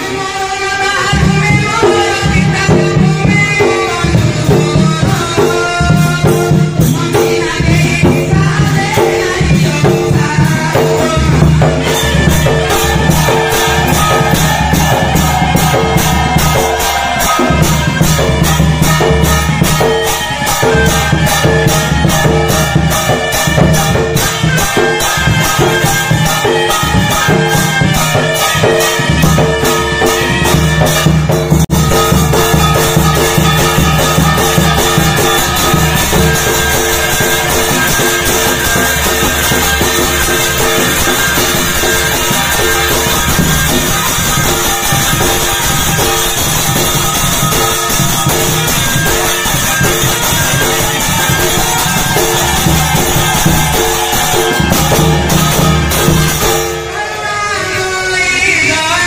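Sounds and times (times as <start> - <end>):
hand cymbals: 0.0 - 57.9
large drums beating: 1.0 - 57.0
reed pipe melody: 5.0 - 58.8.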